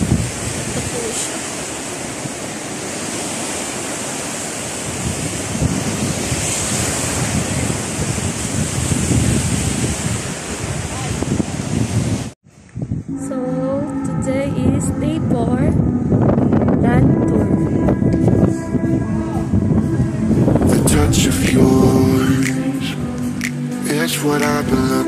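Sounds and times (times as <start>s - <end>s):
ocean surf breaking: 0.0s - 12.4s, 13.1s - 25.0s
wind buffeting microphone: 0.0s - 23.6s.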